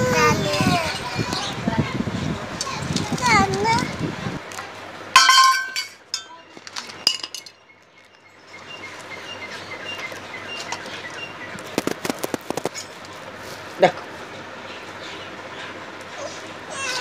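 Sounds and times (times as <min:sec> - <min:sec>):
taps on a steel plate: 0:05.2 - 0:06.3.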